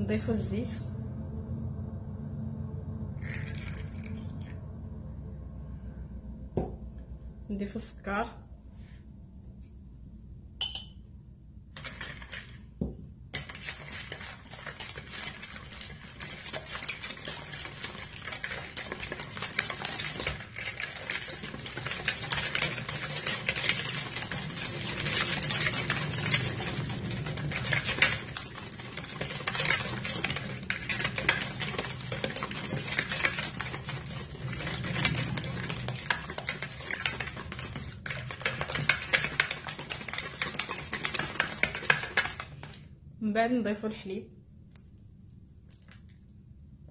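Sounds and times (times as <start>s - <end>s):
whisk beating in a bowl: 13.4s - 42.8s.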